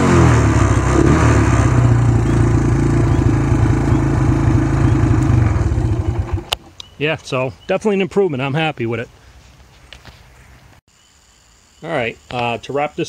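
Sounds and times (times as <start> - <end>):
quad bike engine idling: 0.0 - 6.7.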